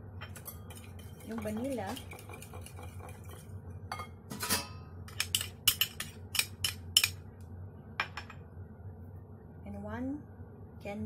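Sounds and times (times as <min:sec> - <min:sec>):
whisk clinking in ceramic bowl: 0:00.2 - 0:04.1.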